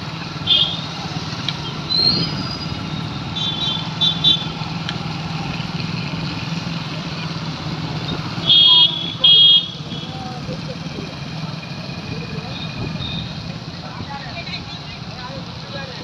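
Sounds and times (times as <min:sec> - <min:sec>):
motorcycle engines running: 0:00.0 - 0:16.0
street traffic hum: 0:00.0 - 0:16.0
rising high squeal: 0:01.8 - 0:03.2.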